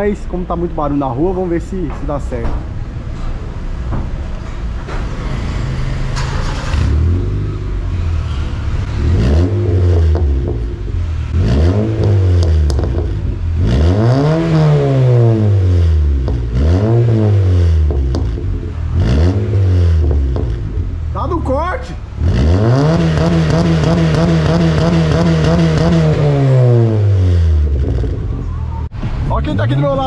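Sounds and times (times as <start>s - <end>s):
car engine revving: 5.2s - 21.1s, 22.0s - 30.0s.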